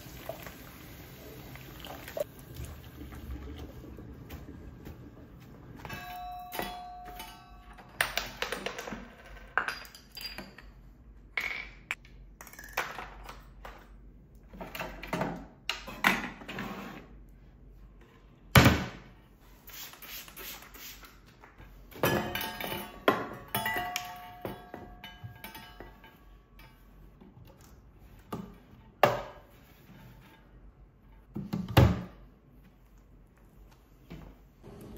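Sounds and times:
dishes clinking and clattering: 22.0s - 27.2s.

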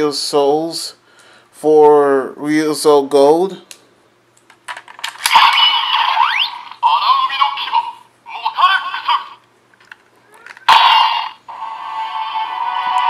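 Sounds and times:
toy sword electronic sound effects: 5.2s - 7.8s, 10.6s - 13.0s
toy voice callouts from small speaker: 5.4s - 9.4s, 10.2s - 11.4s
plastic clicks: 9.8s - 10.7s.

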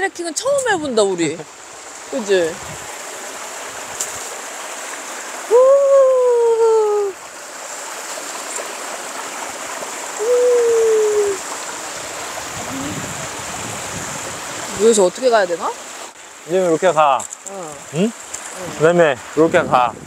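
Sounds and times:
stream running over rocks: 0.0s - 20.0s
long drawn-out calls: 10.2s - 11.6s.

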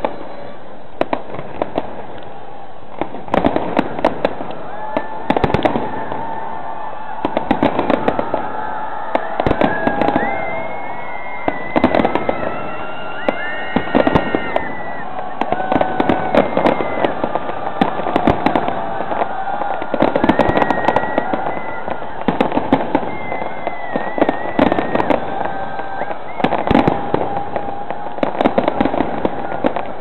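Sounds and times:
fireworks bursting and crackling: 0.0s - 30.0s.

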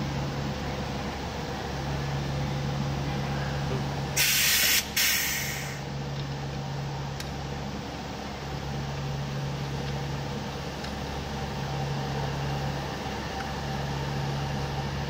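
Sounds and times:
compressed air hissing: 4.2s - 5.8s.

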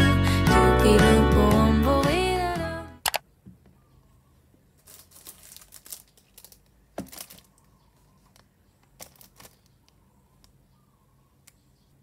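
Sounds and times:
plastic wrapping crinkling: 4.8s - 7.7s, 9.0s - 9.8s
package knocking down: 7.0s - 7.5s.

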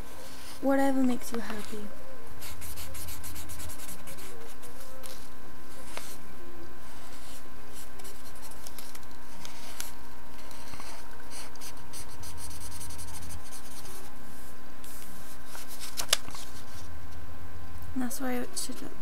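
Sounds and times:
marker pen scratching on paper: 2.4s - 4.8s, 7.3s - 8.8s, 10.5s - 14.1s.

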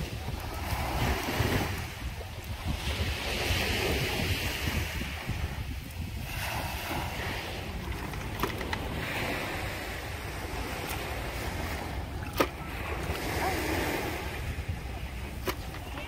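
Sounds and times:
small waves washing on sand: 0.0s - 16.0s
wind buffeting microphone: 0.0s - 16.0s.

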